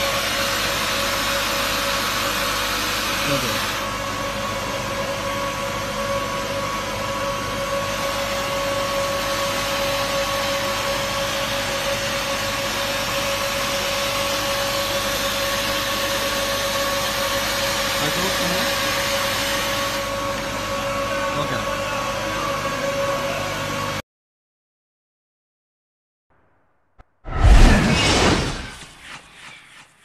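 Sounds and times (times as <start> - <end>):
mixer hum and whining tones: 0.0 - 24.0.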